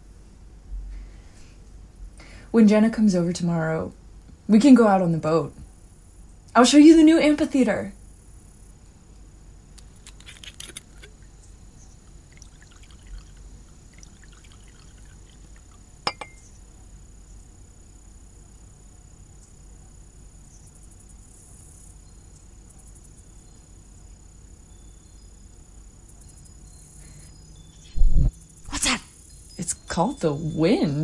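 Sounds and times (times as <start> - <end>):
insects humming: 3.6 - 31.0
glassy clinks: 16.0 - 16.5.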